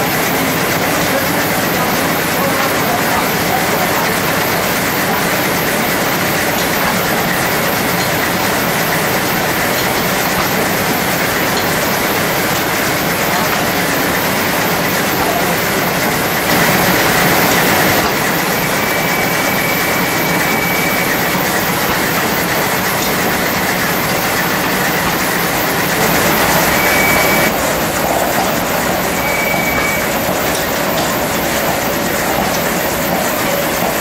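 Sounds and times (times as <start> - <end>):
machine shop belts clattering: 0.0 - 34.0
high belt squeals: 29.1 - 30.2.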